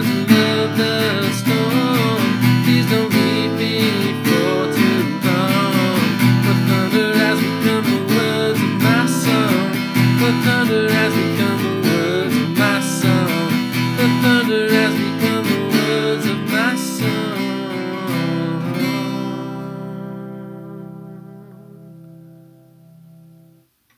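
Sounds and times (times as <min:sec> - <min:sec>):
wordless vocal melody: 0:00.0 - 0:22.4
acoustic guitar strumming: 0:00.0 - 0:23.7.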